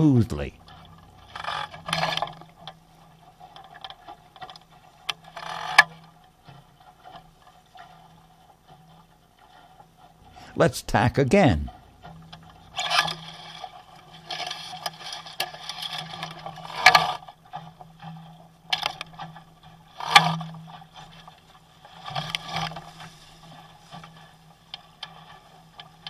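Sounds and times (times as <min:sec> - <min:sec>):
steady low hum: 0:00.0 - 0:03.4, 0:07.3 - 0:15.3
water splashing against hull: 0:00.4 - 0:26.0.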